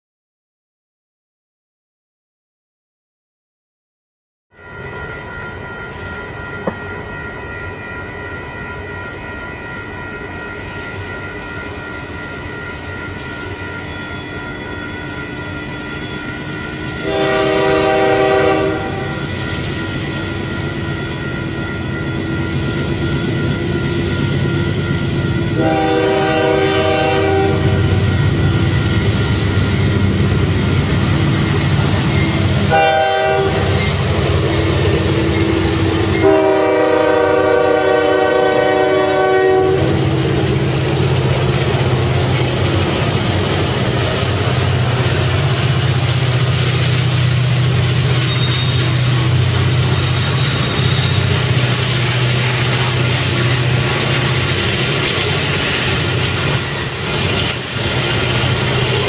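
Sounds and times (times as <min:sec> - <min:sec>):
locomotive air horn blasts: 0:17.0 - 0:19.2, 0:25.5 - 0:27.9, 0:32.6 - 0:33.8, 0:36.0 - 0:40.1
train wheel clatter: 0:40.0 - 0:59.0.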